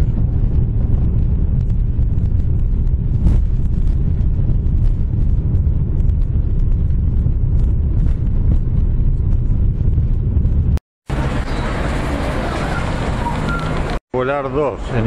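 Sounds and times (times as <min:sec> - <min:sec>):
outdoor street ambience: 0:00.0 - 0:15.0
jet engines rumbling on takeoff: 0:09.4 - 0:14.0.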